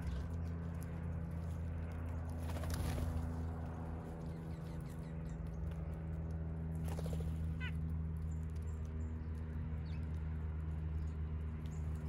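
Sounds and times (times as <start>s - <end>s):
steady low hum: 0.0s - 12.0s
bird chirp: 4.2s - 5.8s.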